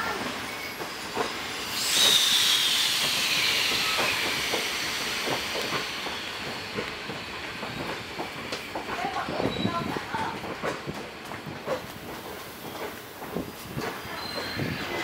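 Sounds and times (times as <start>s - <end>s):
compressed air hissing from train: 0.2s - 8.0s
falling whistling tone: 1.7s - 5.1s.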